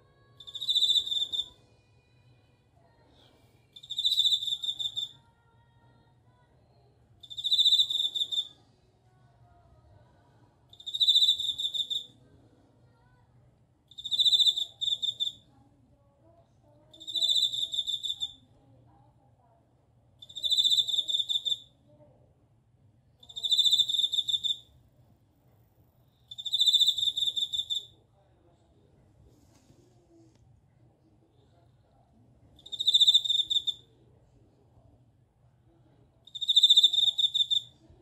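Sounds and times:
cricket chirping: 0.4s - 1.6s, 3.8s - 5.2s, 7.2s - 8.5s, 10.7s - 12.1s, 13.9s - 15.4s, 17.0s - 18.4s, 20.2s - 21.7s, 23.2s - 24.7s, 26.1s - 27.9s, 32.6s - 33.8s, 36.3s - 37.7s.

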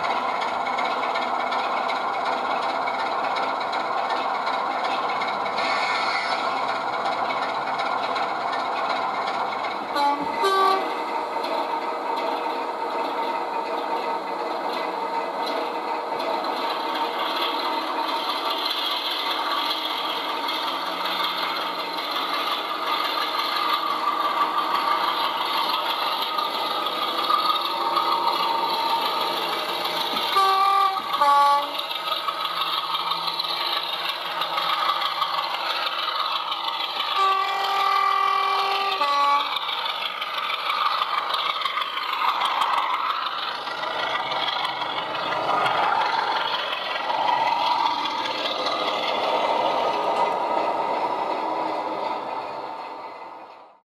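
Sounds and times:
model train diesel engine sound: 0.0s - 53.8s
two-tone train horn: 9.9s - 11.0s, 30.3s - 31.8s, 37.1s - 39.6s.

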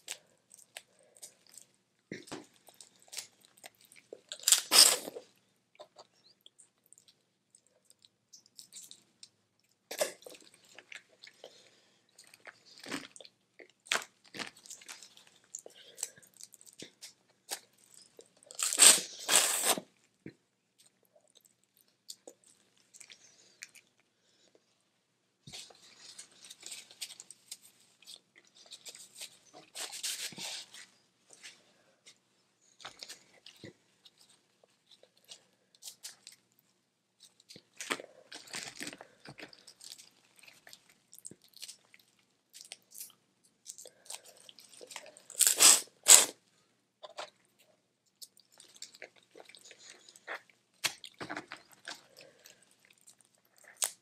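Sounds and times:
chewing: 37.2s - 45.7s, 47.0s - 54.0s.

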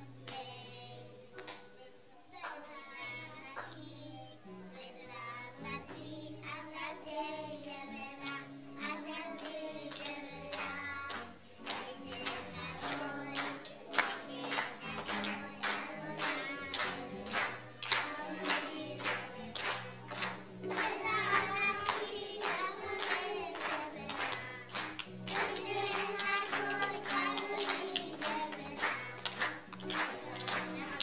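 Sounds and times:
children and adults singing: 0.0s - 31.0s
instrumental accompaniment: 0.0s - 31.0s
hand claps: 1.3s - 1.7s, 8.2s - 31.0s.

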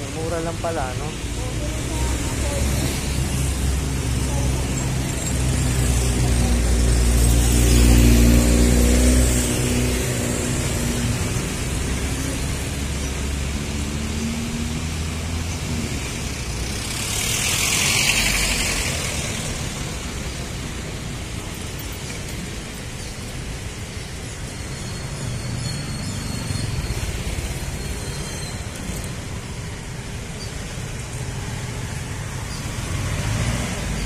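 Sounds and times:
steady traffic rumble: 0.0s - 34.0s
vehicle rushing past: 2.0s - 20.6s.

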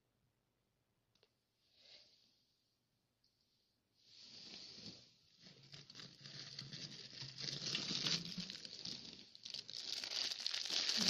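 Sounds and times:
plastic wrapping crinkling: 5.7s - 11.0s.

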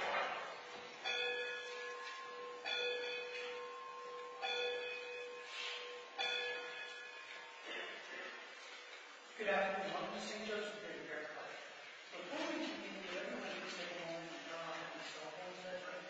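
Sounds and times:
church bell tolling: 0.0s - 8.4s.

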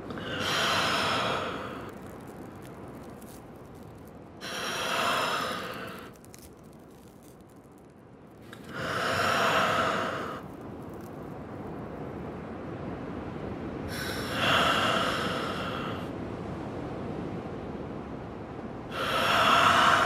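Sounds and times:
low steady noise rush: 0.0s - 20.0s
breathy sighs: 0.1s - 2.0s, 4.4s - 6.2s, 13.9s - 16.1s, 18.9s - 20.0s.

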